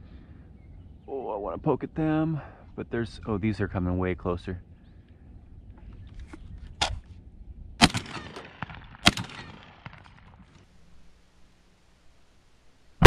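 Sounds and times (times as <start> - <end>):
shotgun shots with echo: 7.8 - 10.4.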